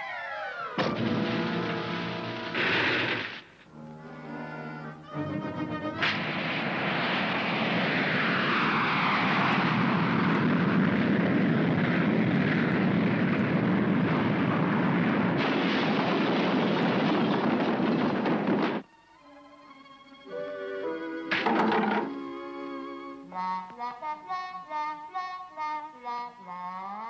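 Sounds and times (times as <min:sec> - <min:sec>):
loud rushing hiss: 0:01.3 - 0:03.6, 0:05.9 - 0:13.3.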